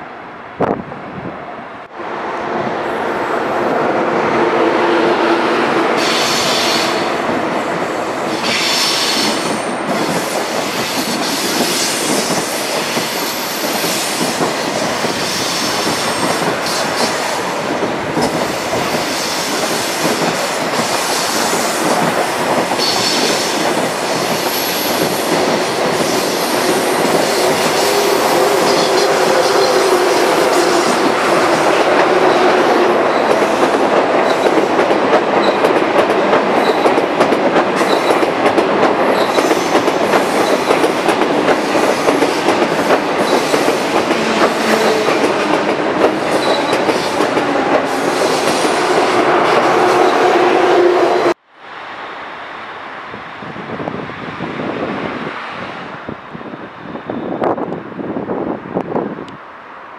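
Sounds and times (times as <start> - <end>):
train wheels running on rails: 5.5 - 51.4.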